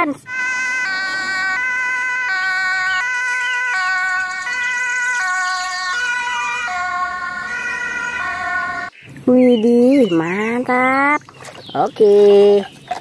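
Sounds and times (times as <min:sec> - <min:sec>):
two-tone ambulance siren: 0:00.2 - 0:08.9.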